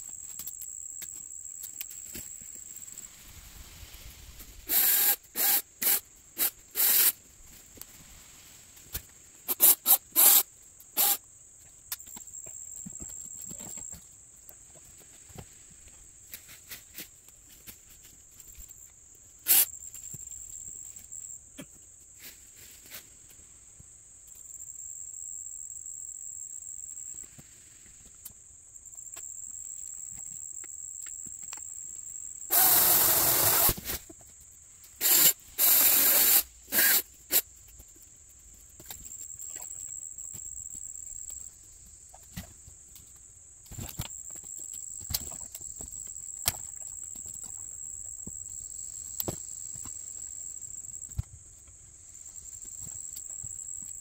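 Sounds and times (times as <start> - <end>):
insects buzzing high-pitched: 0.0 - 7.2, 9.4 - 14.0, 19.4 - 21.4, 28.8 - 37.9.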